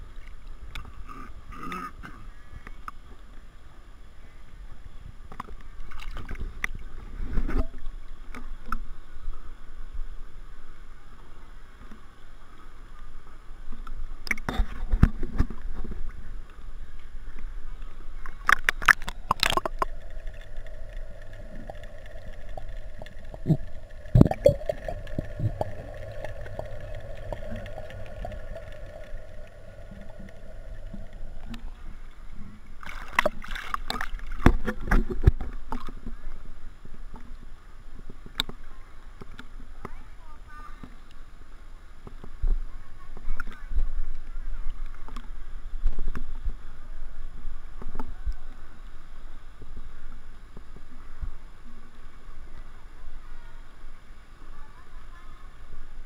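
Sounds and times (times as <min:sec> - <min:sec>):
muffled underwater hum: 0:14.7 - 0:36.8
pool water sloshing: 0:17.7 - 0:35.1
water splashing: 0:17.8 - 0:36.0.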